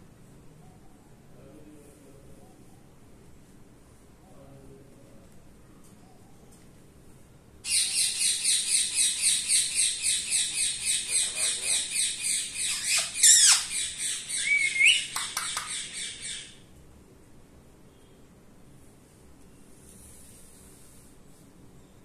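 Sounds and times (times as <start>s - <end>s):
parakeet squawking: 7.7s - 16.6s.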